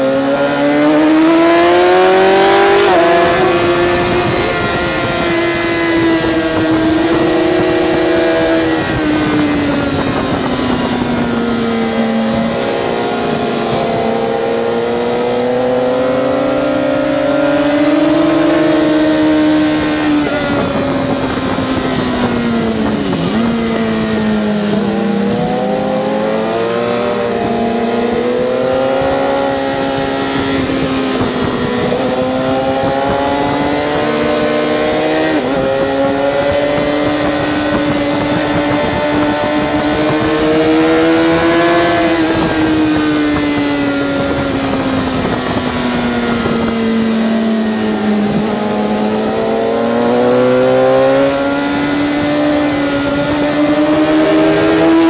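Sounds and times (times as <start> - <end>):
motorcycle engine accelerating: 0.0 - 55.0.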